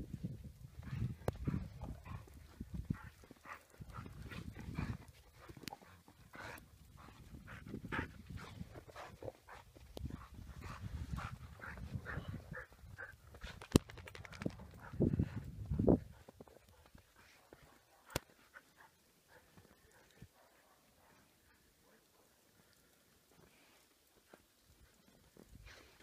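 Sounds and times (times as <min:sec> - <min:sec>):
dog panting and sniffing: 0:00.8 - 0:13.8.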